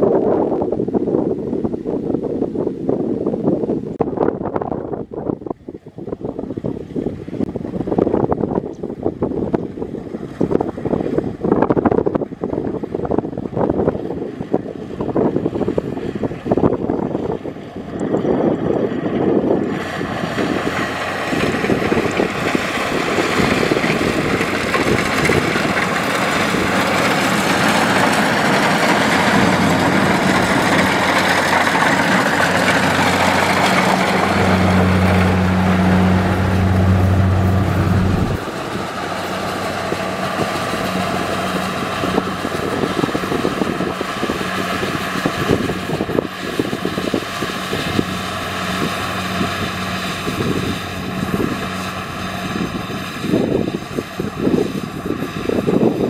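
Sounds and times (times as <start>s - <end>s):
low engine hum: 0.0s - 56.0s
combine harvester running: 14.0s - 56.0s.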